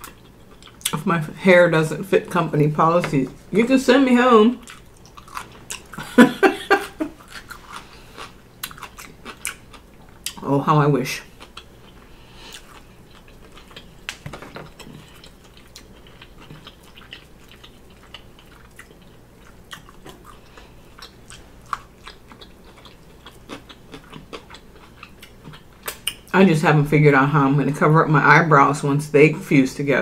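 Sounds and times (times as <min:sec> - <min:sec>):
chewing and biting: 0:04.6 - 0:06.1, 0:07.1 - 0:10.4, 0:11.4 - 0:26.3.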